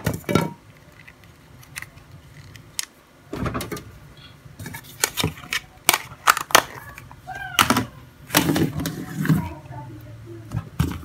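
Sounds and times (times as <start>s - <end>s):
plastic scrape: 7.6s - 9.6s.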